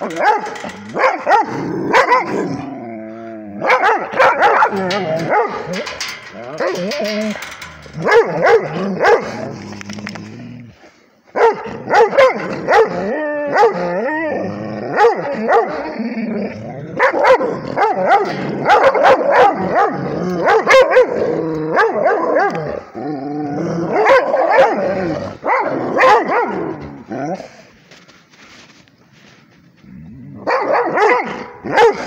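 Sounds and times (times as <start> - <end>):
dogs barking: 0.0 - 2.7, 3.6 - 9.4, 11.3 - 13.8, 14.9 - 15.8, 17.0 - 22.9, 23.9 - 26.8, 30.4 - 32.0.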